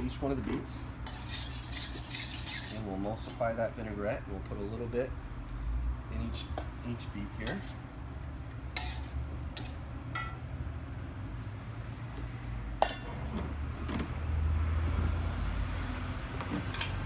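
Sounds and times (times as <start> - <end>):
metal spoon scraping steel bowl: 1.0 - 3.6, 7.4 - 7.8, 8.8 - 9.8.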